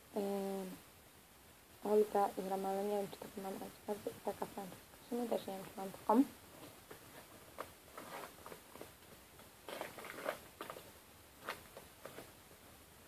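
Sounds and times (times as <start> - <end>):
paper packets tearing and crinkling: 9.6 - 12.3.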